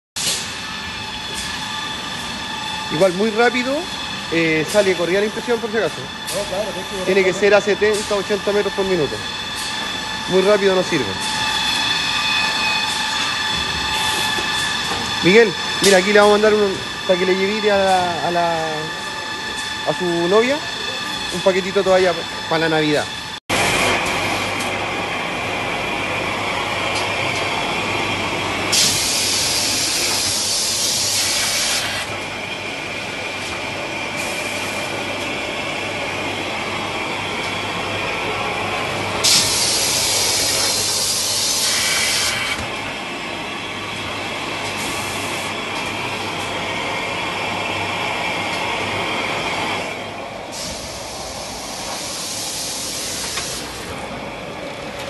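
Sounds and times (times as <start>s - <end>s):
loud hiss: 28.7s - 32.1s, 39.2s - 42.6s, 50.5s - 53.8s.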